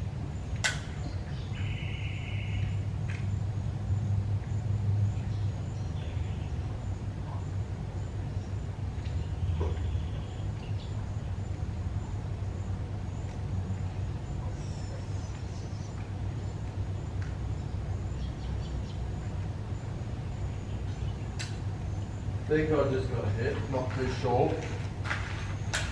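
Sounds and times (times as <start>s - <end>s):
road traffic rumble: 0.0s - 25.9s.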